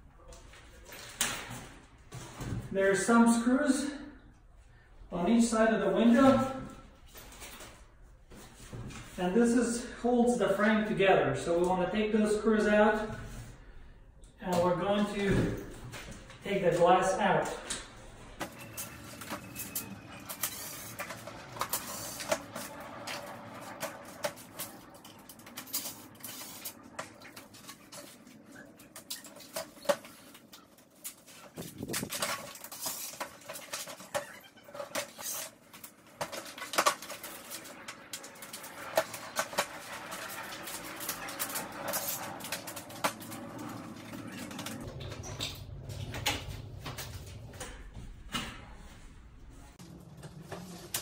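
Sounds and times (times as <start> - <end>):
window frame parts clattering: 18.3 - 48.6.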